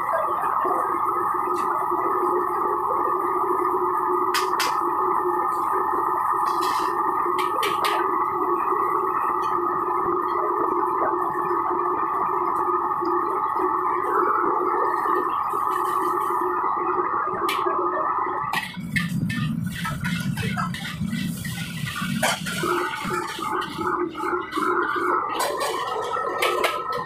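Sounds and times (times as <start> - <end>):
wok burner roaring: 0.0 - 27.0
spatula clattering against wok: 18.6 - 23.7.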